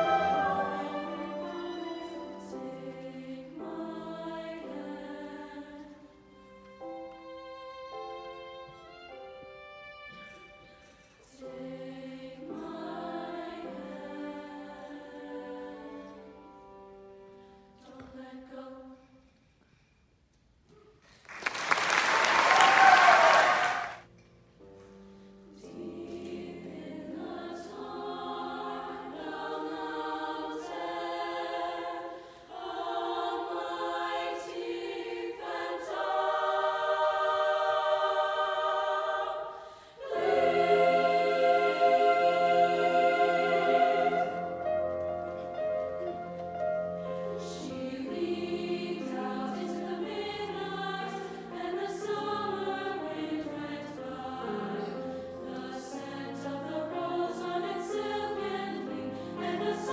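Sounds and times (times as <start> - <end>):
choir singing: 0.0 - 7.3, 7.9 - 19.3, 25.5 - 59.9
audience applauding: 21.2 - 24.0.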